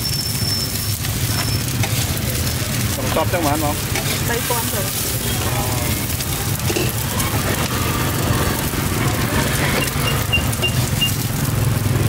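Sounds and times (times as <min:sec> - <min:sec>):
noodles and eggs sizzling in a wok: 0:00.0 - 0:12.0
faint voices: 0:01.4 - 0:11.0.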